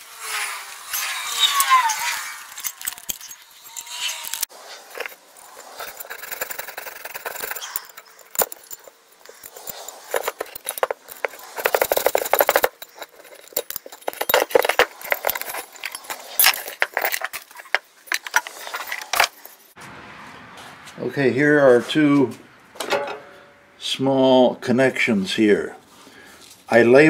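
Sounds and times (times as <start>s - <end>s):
metallic clicking and rattling pulley: 2.5s - 19.8s.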